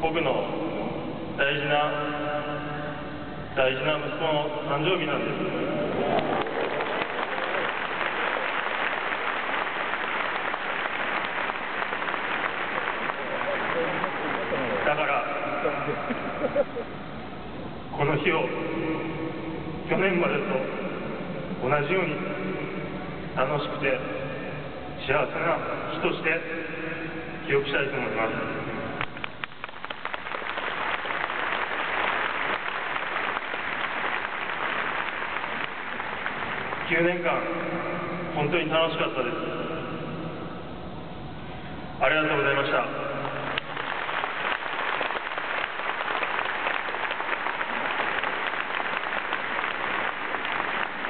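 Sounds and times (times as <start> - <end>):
stadium crowd applauding: 5.9 - 16.7, 29.0 - 37.6, 43.2 - 51.0.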